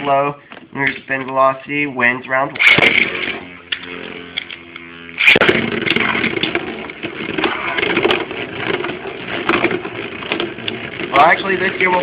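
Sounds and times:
spinning top whirring: 2.4s - 12.0s
rough scraping: 2.5s - 12.0s.

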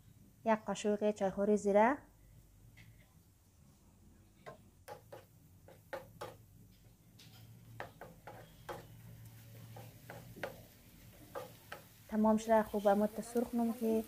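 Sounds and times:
spatula scraping frying pan: 7.4s - 14.0s.

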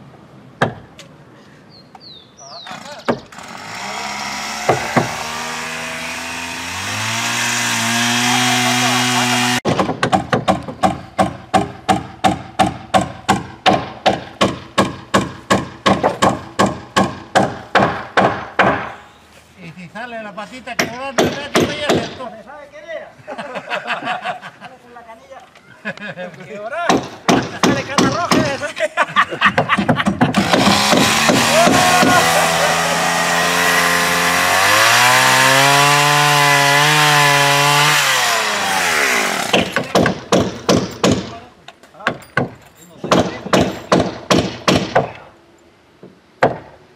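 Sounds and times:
hammering on wooden planks: 0.6s - 1.0s, 4.5s - 5.5s, 7.2s - 19.0s, 20.8s - 22.3s, 26.9s - 28.6s, 29.4s - 32.5s, 39.3s - 41.4s, 42.0s - 45.2s, 46.0s - 46.8s
chainsaw cutting wood: 2.7s - 10.2s, 30.2s - 41.3s
wood knocks: 42.0s - 45.1s.

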